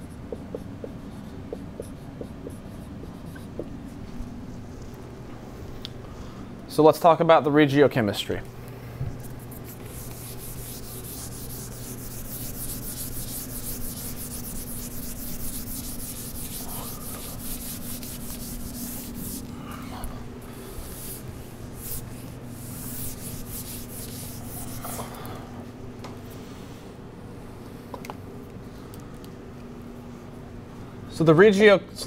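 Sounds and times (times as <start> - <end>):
eraser rubbing on whiteboard: 0.0 - 4.0, 9.3 - 19.5, 20.8 - 25.0.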